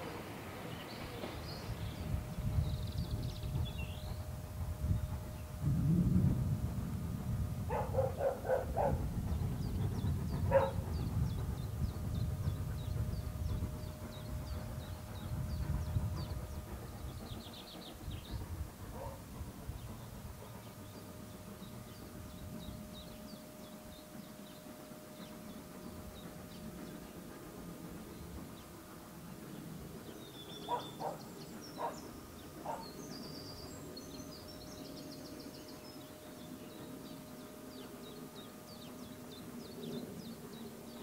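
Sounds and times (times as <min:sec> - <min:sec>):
small birds chirping: 0:00.6 - 0:04.4, 0:07.7 - 0:41.0
dog barking: 0:07.7 - 0:09.0, 0:10.5 - 0:10.8, 0:19.0 - 0:19.2, 0:30.7 - 0:31.2, 0:32.6 - 0:32.9.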